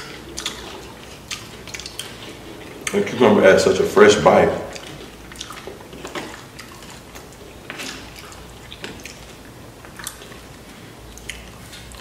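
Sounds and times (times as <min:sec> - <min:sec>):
fingers picking through nachos: 0:00.0 - 0:03.2.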